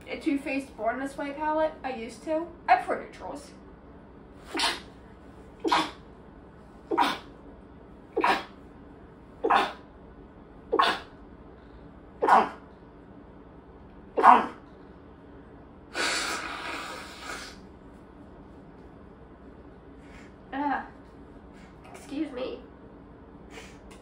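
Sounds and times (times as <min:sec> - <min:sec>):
woman sneezing: 0:04.5 - 0:04.9, 0:05.7 - 0:06.0, 0:06.9 - 0:07.3, 0:08.2 - 0:08.6, 0:09.4 - 0:09.8, 0:10.8 - 0:11.1, 0:12.2 - 0:12.6, 0:14.2 - 0:14.6.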